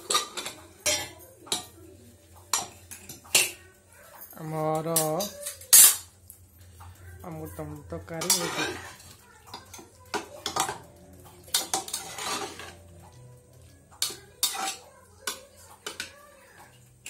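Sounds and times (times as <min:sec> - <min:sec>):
metal spoon scraping pot: 0:08.1 - 0:09.2, 0:11.5 - 0:13.0, 0:14.0 - 0:16.1.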